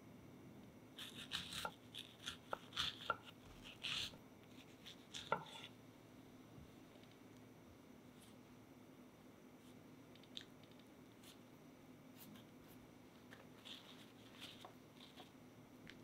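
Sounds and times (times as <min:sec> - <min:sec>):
knife slicing strawberries: 0:01.0 - 0:05.7.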